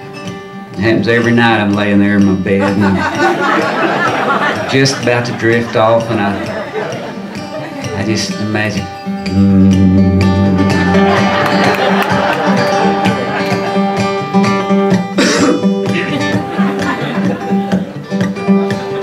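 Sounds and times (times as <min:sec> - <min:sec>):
acoustic guitar strumming: 0:00.0 - 0:19.0
low bass note ringing: 0:09.2 - 0:11.1.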